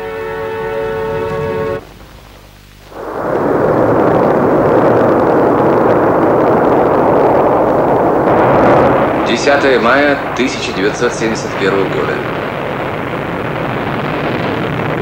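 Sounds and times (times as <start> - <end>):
held music chord: 0.0 - 1.9
rocket engines rumbling: 0.0 - 15.0.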